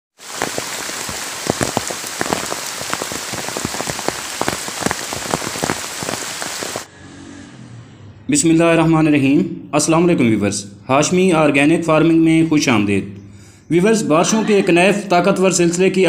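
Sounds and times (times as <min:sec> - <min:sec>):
heavy rain on foliage: 0:00.1 - 0:06.9.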